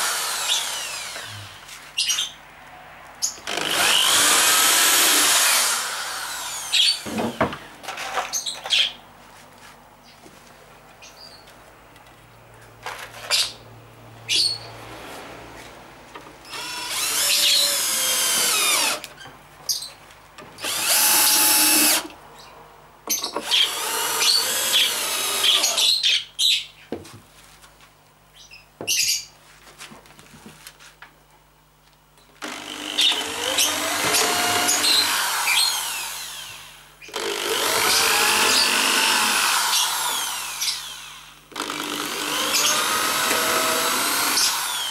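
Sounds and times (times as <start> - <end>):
electric drill running: 0.0 - 1.5, 3.4 - 7.2, 16.5 - 19.1, 20.6 - 22.1, 23.4 - 26.0, 32.4 - 44.9.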